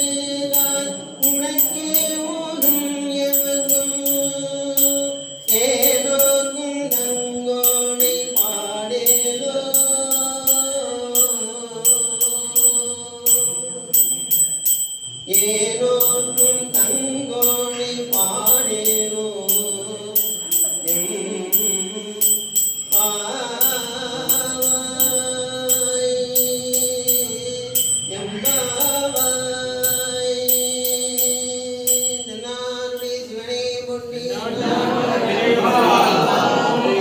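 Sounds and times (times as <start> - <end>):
small hand cymbals ringing: 0.0 - 33.8
man singing in long held notes: 0.0 - 34.9.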